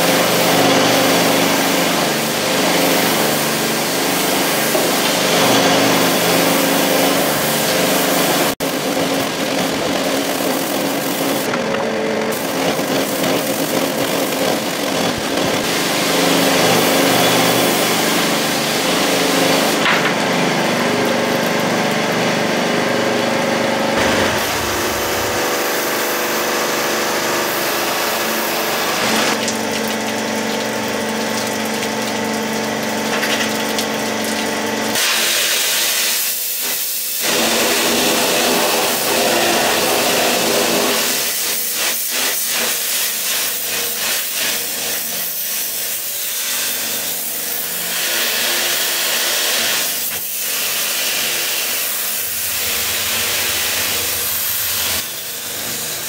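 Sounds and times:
water jet hissing: 0.0 - 8.6, 24.0 - 56.0
pressure washer engine humming: 0.0 - 36.3, 37.1 - 42.1, 45.0 - 56.0.

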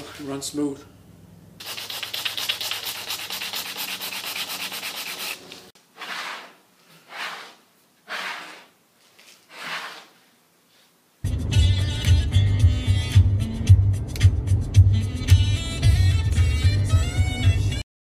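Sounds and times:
sandpaper rubbing back and forth: 1.6 - 8.8, 9.4 - 10.2
sled sliding across saw table: 5.1 - 10.8.

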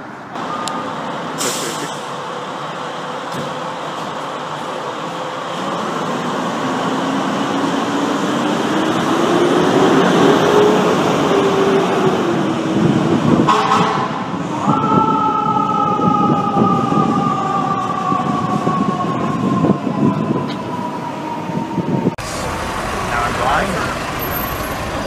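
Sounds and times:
truck engine and traffic rumbling: 0.0 - 14.7, 17.9 - 25.0
air horn blasts: 13.5 - 14.4
rising siren whine: 14.4 - 25.0.

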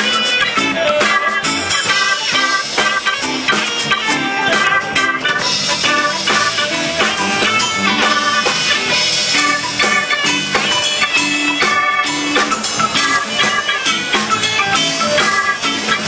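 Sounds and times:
drum kit: 0.0 - 16.0
electric guitar: 0.0 - 16.0
live band playing: 0.0 - 16.0.

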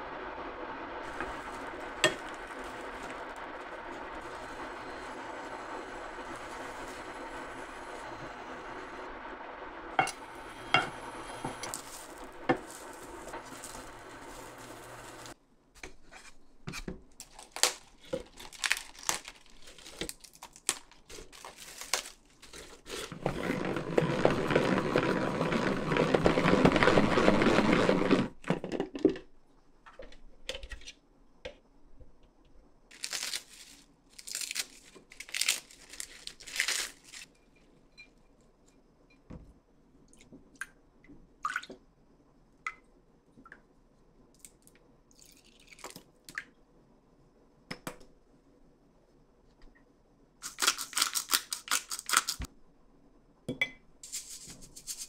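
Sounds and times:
steady hum: 0.0 - 15.4
salad leaves rustling: 11.6 - 15.4, 17.3 - 23.2, 32.9 - 37.3
lettuce leaves crinkling: 17.2 - 23.2, 32.9 - 37.3
salad spinner whirring: 23.1 - 28.4.

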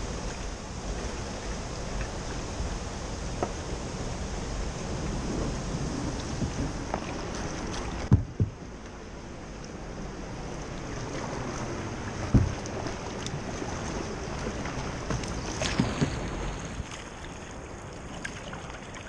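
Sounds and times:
river water rushing: 0.0 - 19.0
water splashing over bow: 0.0 - 19.0
sharp thumps: 8.0 - 8.6, 12.3 - 12.6.

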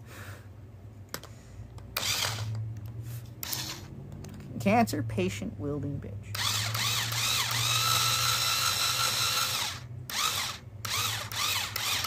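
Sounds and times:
cordless drill motor whine: 2.0 - 2.6, 3.4 - 3.9, 6.3 - 12.0.

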